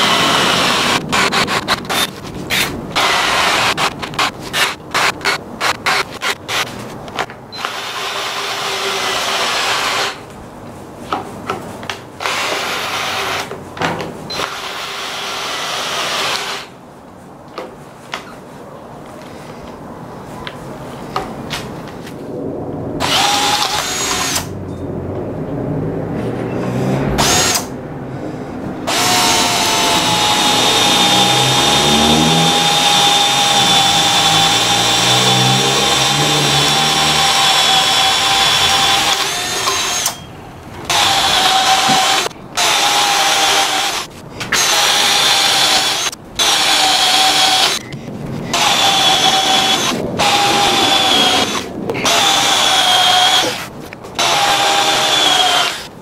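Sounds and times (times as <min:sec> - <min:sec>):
cordless drill boring into wood: 0:00.0 - 0:06.6, 0:07.6 - 0:10.2, 0:12.2 - 0:13.5, 0:14.3 - 0:16.7, 0:23.0 - 0:24.5, 0:27.2 - 0:27.7, 0:28.9 - 0:40.2, 0:40.9 - 0:47.9, 0:48.5 - 0:53.6, 0:54.2 - 0:55.9.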